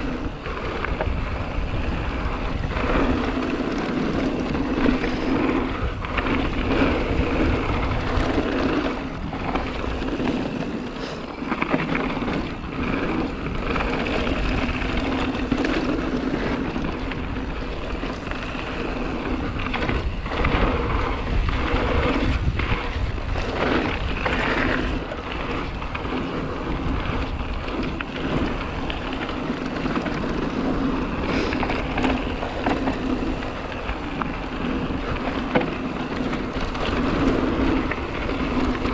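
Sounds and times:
bike tyres rumbling on dirt: 0.0 - 38.9.

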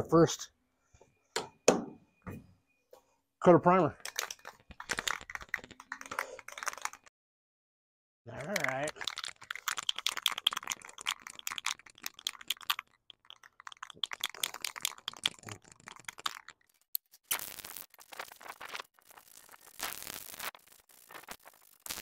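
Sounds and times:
aerosol can ball rattling: 4.0 - 7.1, 8.4 - 20.0.

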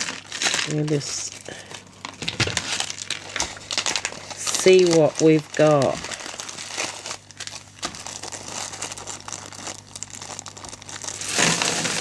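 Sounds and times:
plastic bags crinkling: 0.0 - 12.0
beads pouring into cardboard box: 9.8 - 12.0.

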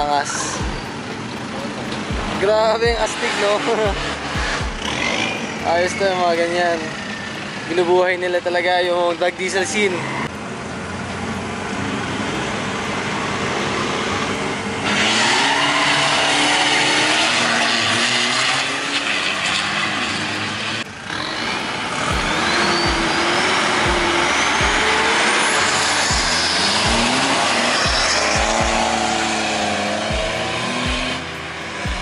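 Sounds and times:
diesel engines racing: 0.0 - 32.0
whistle rising in pitch: 21.4 - 32.0.

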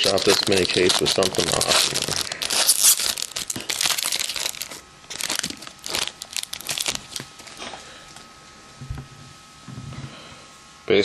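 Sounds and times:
plastic wrapper crinkling: 0.0 - 8.3.

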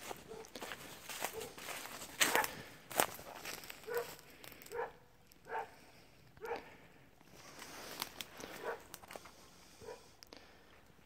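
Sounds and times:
footstep clicks on path: 0.0 - 5.4
dog barking: 0.2 - 0.6, 1.2 - 1.6, 2.2 - 2.6, 3.8 - 5.8, 6.4 - 6.7, 8.6 - 8.9, 9.8 - 10.1.

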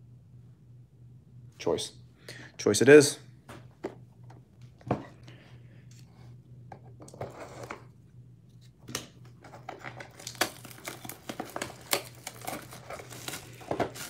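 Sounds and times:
cardboard crackles and taps: 8.9 - 14.0
plastic wrap crinkling and tearing: 9.7 - 14.0.

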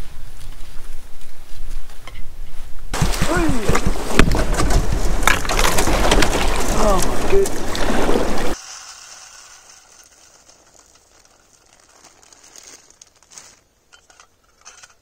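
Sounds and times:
seed pouring: 8.5 - 13.6
plastic bag crinkling: 9.1 - 13.7.

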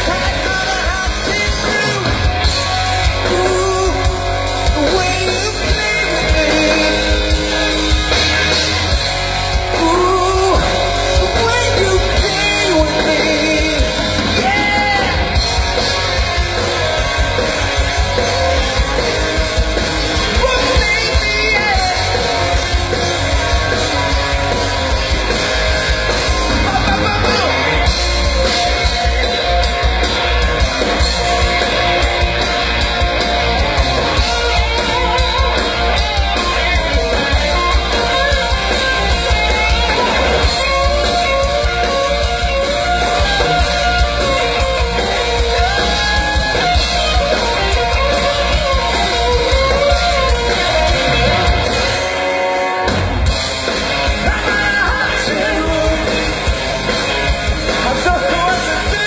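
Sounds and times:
man singing: 0.0 - 7.6, 9.7 - 15.3, 20.2 - 22.6, 26.5 - 27.9, 54.2 - 56.6, 57.7 - 59.0
electric guitar: 0.0 - 59.0
live rock band playing: 0.0 - 59.0.

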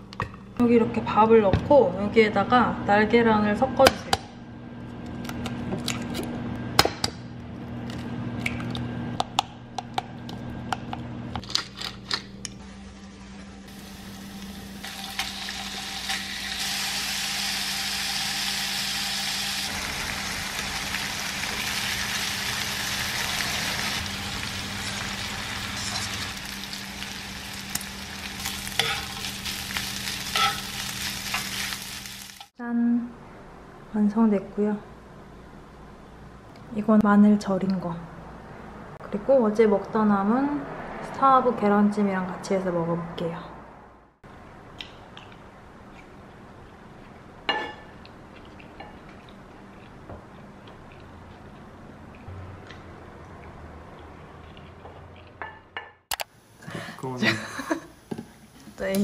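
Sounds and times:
bacon sizzling in frying pan: 13.7 - 32.5
utensils scraping in pan: 24.8 - 26.8, 28.4 - 32.5.

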